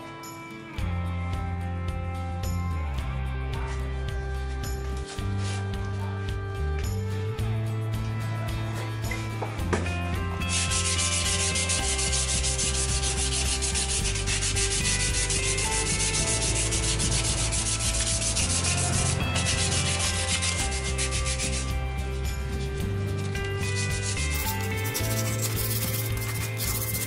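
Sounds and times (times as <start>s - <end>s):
sandpaper scrubbing metal: 10.3s - 27.0s.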